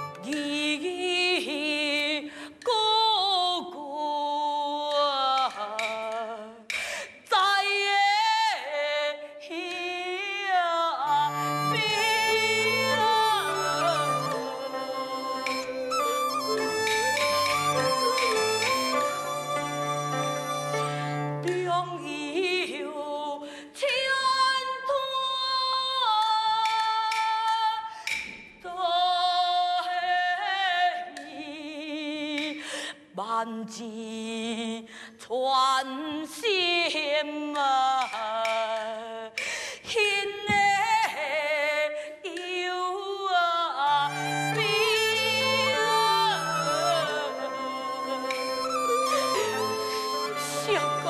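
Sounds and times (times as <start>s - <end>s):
traditional instrumental accompaniment: 0.0s - 1.2s, 4.9s - 7.0s, 11.0s - 22.7s, 43.9s - 51.0s
person singing opera with vibrato: 0.0s - 19.9s, 38.0s - 51.0s.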